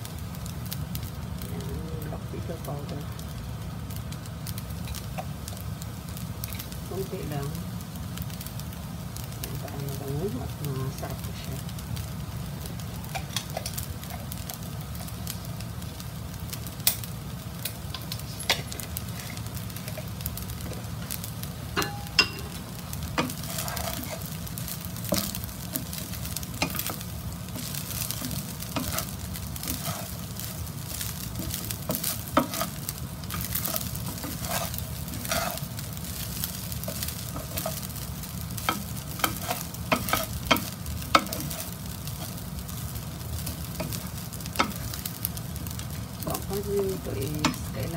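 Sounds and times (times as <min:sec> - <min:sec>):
fried rice sizzling in pan: 0:00.0 - 0:47.9
low steady hum: 0:00.0 - 0:47.9
spatula scraping and knocking pan: 0:21.8 - 0:24.4, 0:25.1 - 0:42.3.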